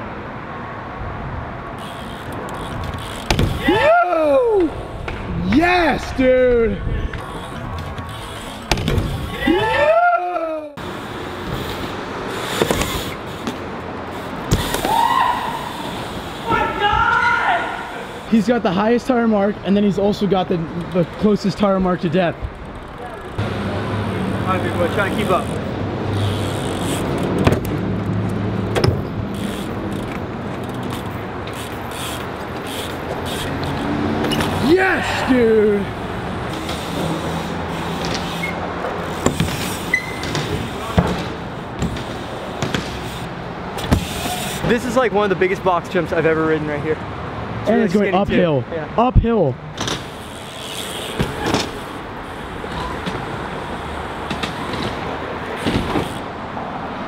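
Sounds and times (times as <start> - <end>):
road traffic rumble: 0.0 - 57.0
bikes knocking ramp edges: 1.8 - 5.6, 7.2 - 9.9, 12.4 - 13.7, 14.4 - 15.2, 28.6 - 34.7, 36.4 - 44.8, 49.7 - 56.2
bmx bikes rattling on concrete: 1.8 - 47.0, 49.7 - 56.4
bike landing knocks: 2.6 - 3.7, 7.2 - 9.4, 39.1 - 43.1, 43.8 - 44.4, 51.0 - 51.8, 54.2 - 56.2.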